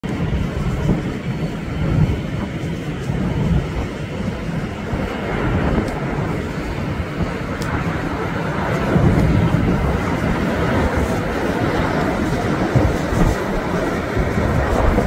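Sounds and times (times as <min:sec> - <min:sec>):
jet engines rumbling: 0:00.0 - 0:15.0.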